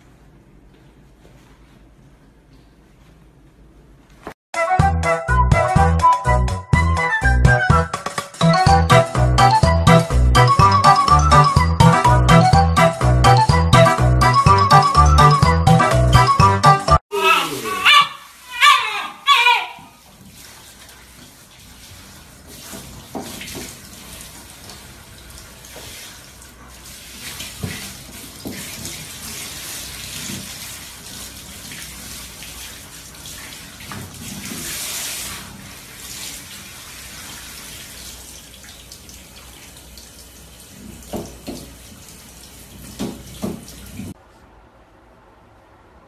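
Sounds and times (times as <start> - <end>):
shower water running: 17.1 - 44.2.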